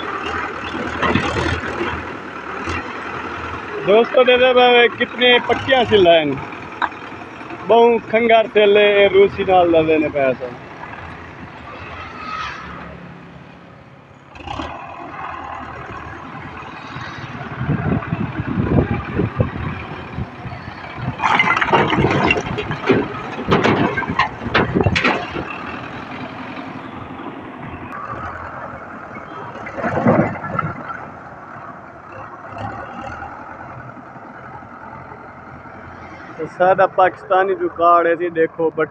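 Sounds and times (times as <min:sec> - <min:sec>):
tractor running under load: 0:00.0 - 0:12.2, 0:12.8 - 0:38.9
bricks clattering into steel trolley: 0:21.2 - 0:25.5.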